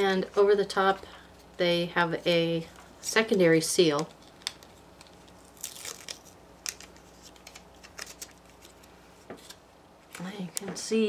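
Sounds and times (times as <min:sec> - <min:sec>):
plastic film crinkling: 0:03.7 - 0:10.6.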